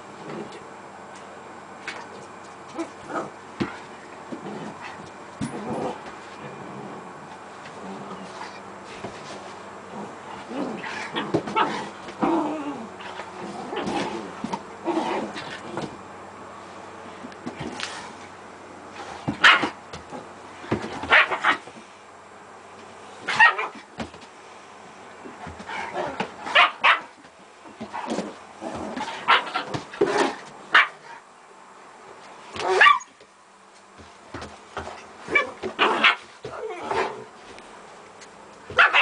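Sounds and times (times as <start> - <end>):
dogs barking and yipping: 26.5 - 27.2, 32.6 - 33.1, 35.3 - 36.3, 38.7 - 39.0.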